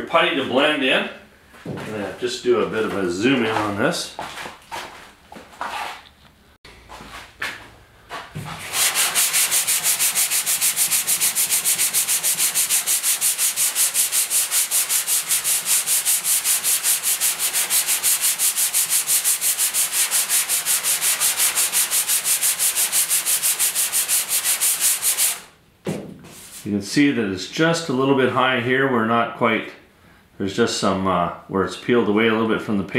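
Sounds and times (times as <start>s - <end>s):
sandpaper scraping on filler: 8.4s - 25.5s, 26.3s - 26.8s.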